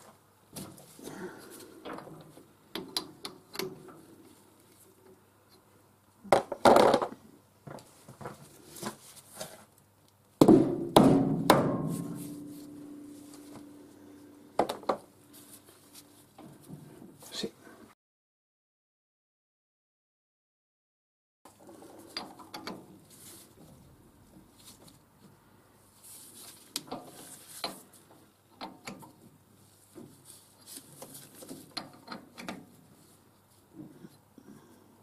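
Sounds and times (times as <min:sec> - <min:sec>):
metal knocks and clanks: 0:10.4 - 0:13.9
metallic ring: 0:11.9 - 0:14.6.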